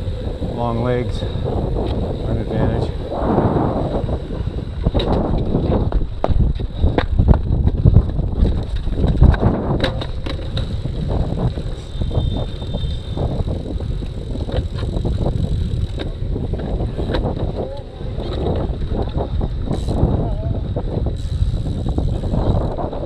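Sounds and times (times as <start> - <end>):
bike rattling clicks: 0.0 - 3.0, 3.8 - 23.0
wind noise on microphone: 0.0 - 23.0
bike rolling over cobbles: 4.7 - 23.0.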